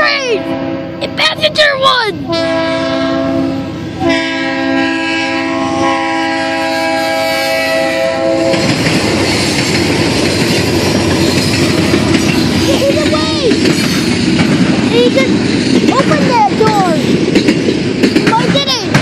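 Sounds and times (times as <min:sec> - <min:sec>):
locomotive air horn: 0:00.0 - 0:01.0, 0:02.3 - 0:08.7
train engine and wheels on rails: 0:00.0 - 0:19.0.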